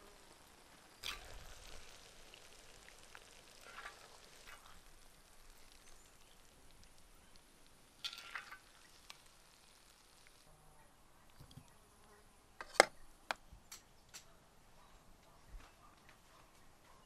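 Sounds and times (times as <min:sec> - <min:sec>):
mushrooms sizzling in a pan: 0:00.0 - 0:10.5.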